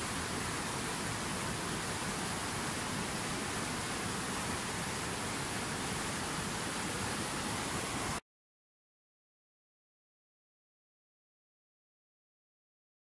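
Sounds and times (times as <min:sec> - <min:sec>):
river rushing over rocks: 0:00.0 - 0:08.2.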